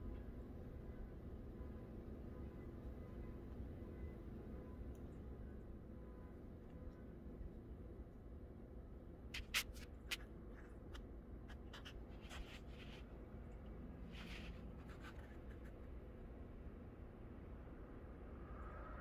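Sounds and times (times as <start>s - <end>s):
scratchy brushing sounds: 9.4s - 10.3s, 11.5s - 13.2s, 14.0s - 15.8s
low steady rumble: 10.3s - 19.0s.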